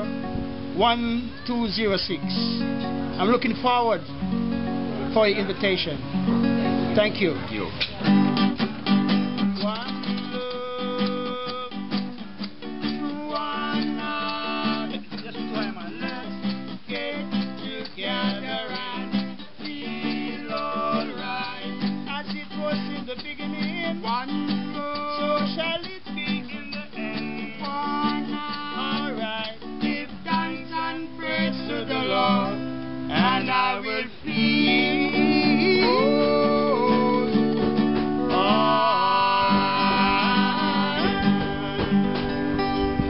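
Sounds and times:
acoustic guitar strumming: 0:00.0 - 0:43.0
man singing: 0:09.4 - 0:43.0.

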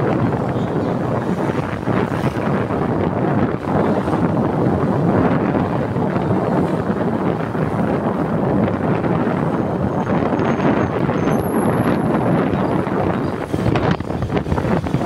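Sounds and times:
road and engine noise: 0:00.0 - 0:15.0
wind rushing over microphone: 0:00.0 - 0:15.0.

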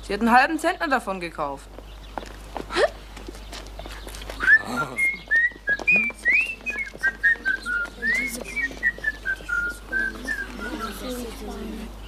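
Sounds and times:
person whistling a tune: 0:04.4 - 0:11.0.

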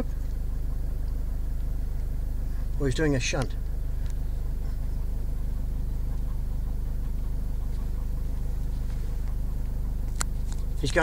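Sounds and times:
car engine running: 0:00.0 - 0:11.0.

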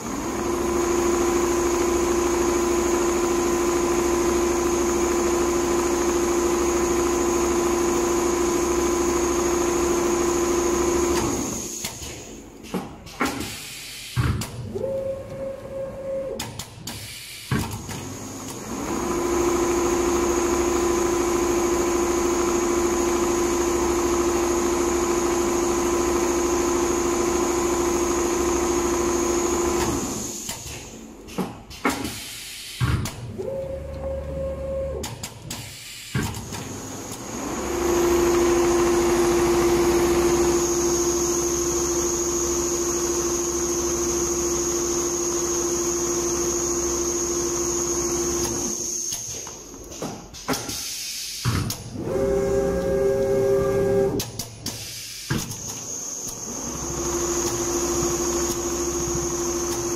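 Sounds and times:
sewing machine running: 0:00.0 - 0:11.7, 0:18.0 - 0:30.4, 0:36.5 - 0:49.0, 0:51.9 - 0:54.2, 0:55.9 - 0:59.9.

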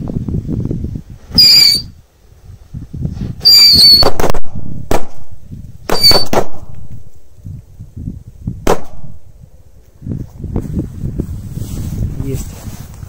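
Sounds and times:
firecracker shrill whistle: 0:01.3 - 0:02.0, 0:03.4 - 0:04.2, 0:05.9 - 0:06.4
firecracker bangs: 0:03.7 - 0:06.8, 0:08.6 - 0:09.2.

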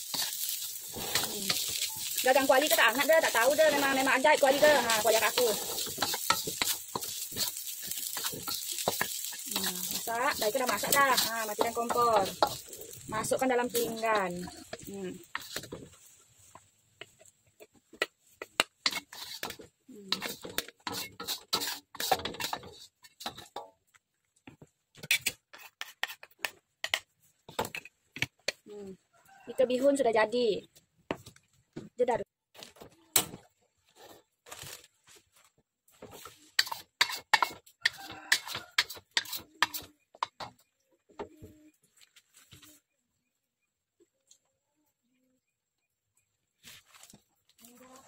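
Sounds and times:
spatula scraping a steel wok: 0:00.0 - 0:23.7, 0:25.0 - 0:28.6, 0:36.0 - 0:40.6.

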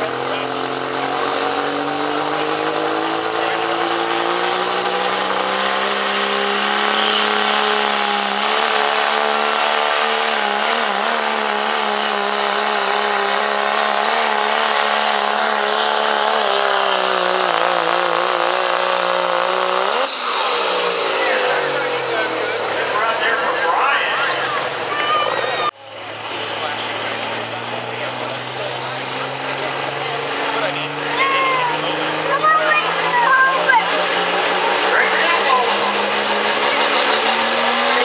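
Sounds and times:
diesel pickup engine at full power: 0:00.0 - 0:38.0.

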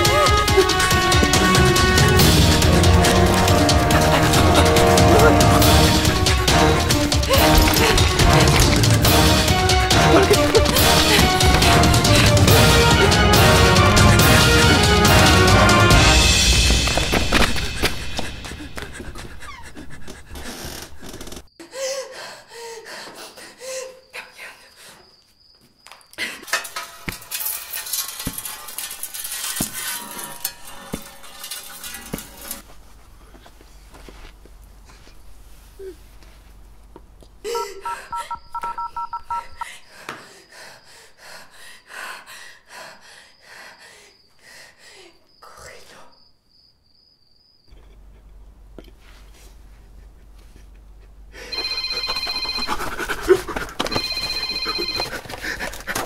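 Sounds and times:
crackling metallic scraping: 0:00.0 - 0:18.1, 0:26.4 - 0:32.9
heavy breathing: 0:10.8 - 0:14.7, 0:17.6 - 0:25.1
telephone trilling ring: 0:37.8 - 0:39.6, 0:51.5 - 0:53.0, 0:53.8 - 0:55.4.

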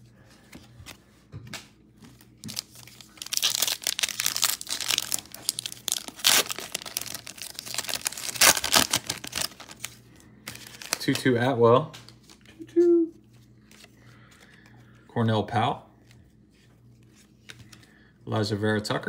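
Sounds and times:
foil wrapper crinkling and tearing: 0:02.4 - 0:11.3.

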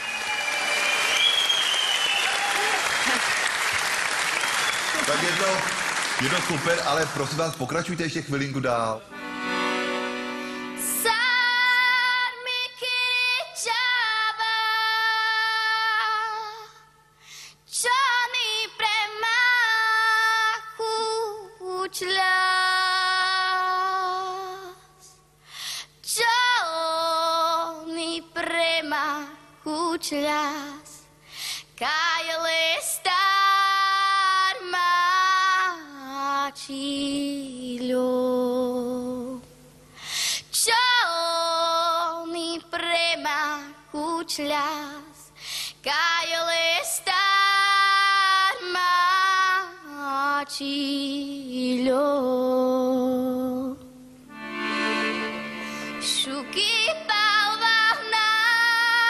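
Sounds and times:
girl singing solo: 0:56.0 - 0:59.0.

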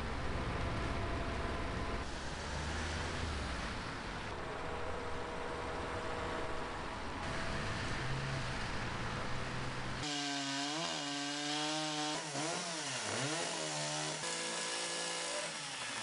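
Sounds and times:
steady hum: 0:00.0 - 0:10.0
chainsaw revving: 0:10.0 - 0:16.0.

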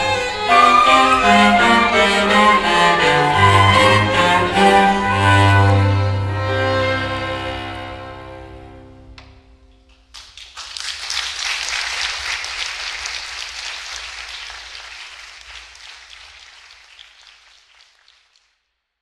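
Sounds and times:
audience applause: 0:10.0 - 0:18.5.

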